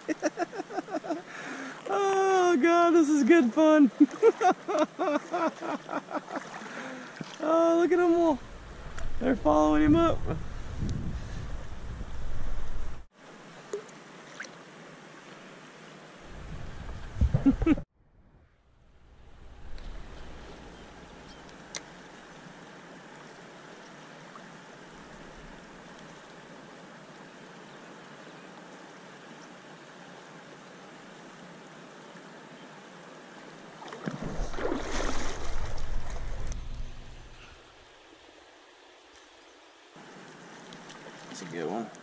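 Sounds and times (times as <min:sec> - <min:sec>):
river water running over riffle: 0:00.6 - 0:09.1, 0:19.4 - 0:39.4, 0:40.0 - 0:42.0.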